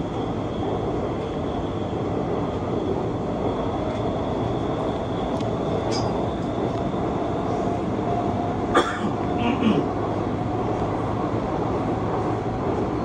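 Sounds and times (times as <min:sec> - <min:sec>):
faint high whine: 0:00.0 - 0:09.8
train rumble and rail noise: 0:00.0 - 0:13.0.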